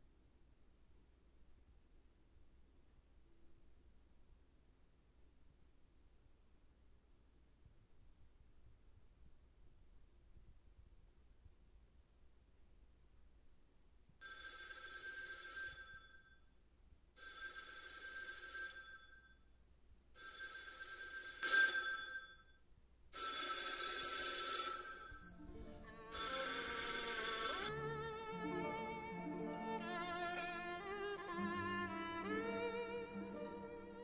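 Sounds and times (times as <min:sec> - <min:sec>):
telephone ringing: 0:14.2 - 0:16.3, 0:17.2 - 0:19.3, 0:20.2 - 0:22.5, 0:23.2 - 0:25.5, 0:26.1 - 0:27.7.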